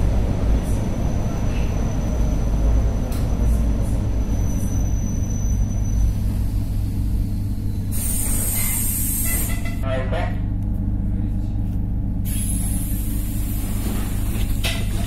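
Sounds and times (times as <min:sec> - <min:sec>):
electric train rumbling on rails: 0:00.0 - 0:15.0
air release hiss: 0:07.9 - 0:09.6, 0:12.3 - 0:14.4.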